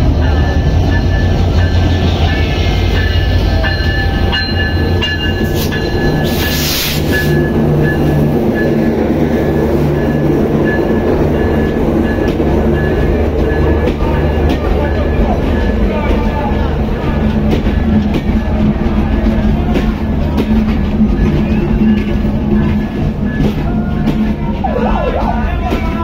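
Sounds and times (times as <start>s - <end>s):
diesel locomotive engine rumble: 0.0s - 26.0s
train wheels rolling on rails: 0.0s - 26.0s
loud hiss: 5.4s - 7.4s.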